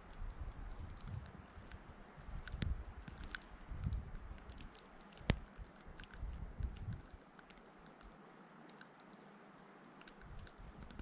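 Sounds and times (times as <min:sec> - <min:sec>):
wind buffeting microphone: 0:00.0 - 0:07.2, 0:10.2 - 0:11.0
light ticks: 0:00.0 - 0:11.0.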